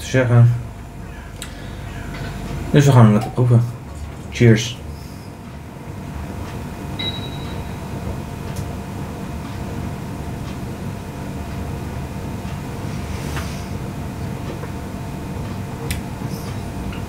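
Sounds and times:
low rumbling with faint hum: 0:00.0 - 0:17.0
short high beep: 0:07.0 - 0:07.9.

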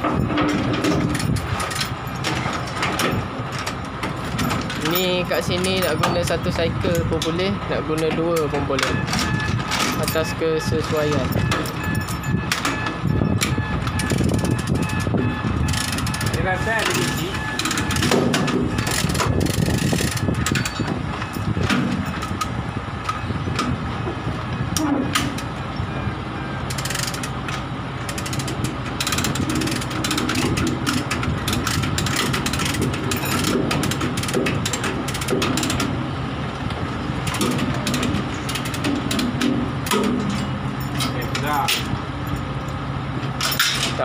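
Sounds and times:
chain hoist ratchet clicking: 0:00.0 - 0:07.4, 0:09.1 - 0:21.4, 0:26.7 - 0:35.9, 0:37.2 - 0:42.8.

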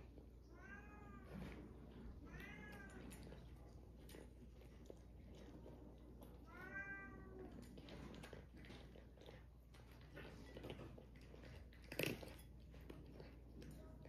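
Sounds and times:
cat meowing: 0:00.5 - 0:01.4, 0:02.2 - 0:03.2, 0:06.5 - 0:07.6
cat crunching dry kibble: 0:02.1 - 0:14.0.

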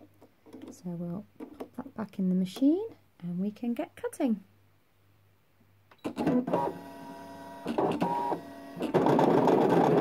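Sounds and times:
cutting machine motor whine: 0:06.5 - 0:10.0.

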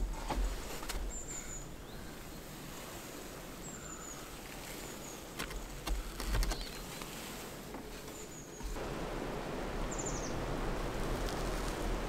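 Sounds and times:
small birds chirping: 0:00.0 - 0:08.8, 0:09.8 - 0:10.5.

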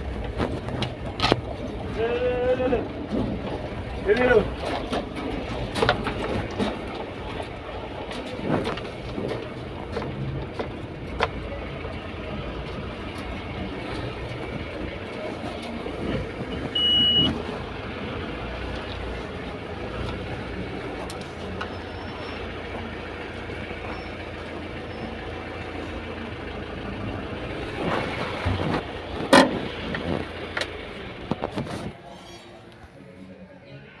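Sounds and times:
truck engine running: 0:00.0 - 0:34.0
short high beep: 0:16.6 - 0:17.3.

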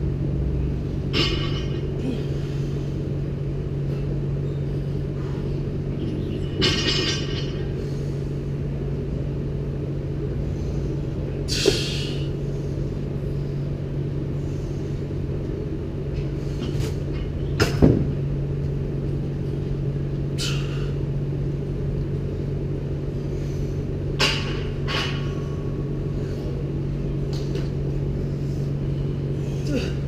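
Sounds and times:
low room hum: 0:00.0 - 0:30.0.

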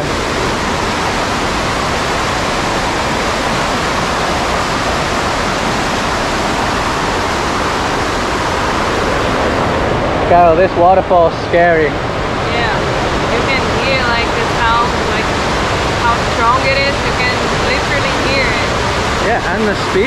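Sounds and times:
waterfall rushing: 0:00.0 - 0:20.0.

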